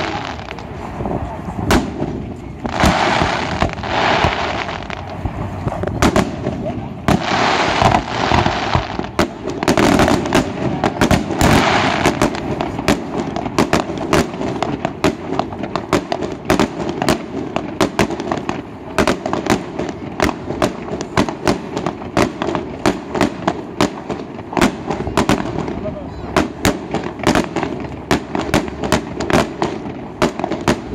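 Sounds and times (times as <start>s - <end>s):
fireworks bangs: 0.0s - 30.9s
fireworks hissing crackle: 0.0s - 30.9s.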